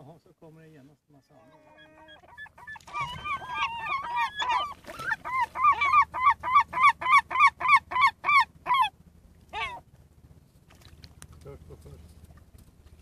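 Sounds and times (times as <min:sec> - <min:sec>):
gulls calling: 0:01.2 - 0:09.9.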